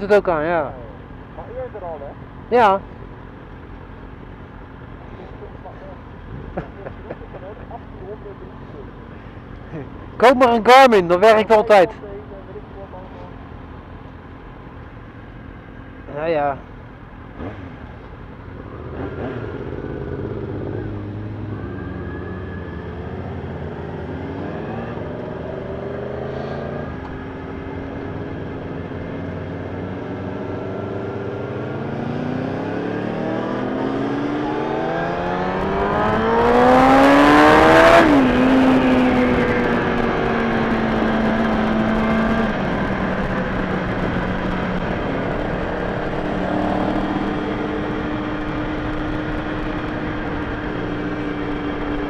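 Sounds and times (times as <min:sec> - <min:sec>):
motorcycle engine revving: 0:17.3 - 0:52.0.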